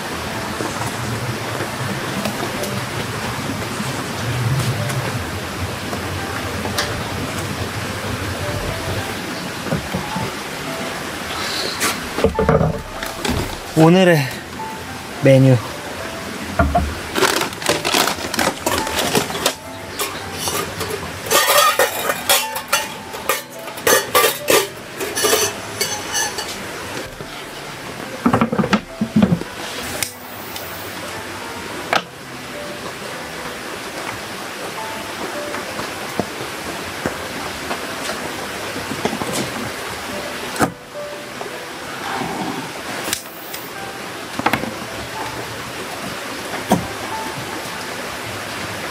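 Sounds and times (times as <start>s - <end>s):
steady rain: 0.0s - 48.9s
metal cookware clattering: 16.7s - 26.6s.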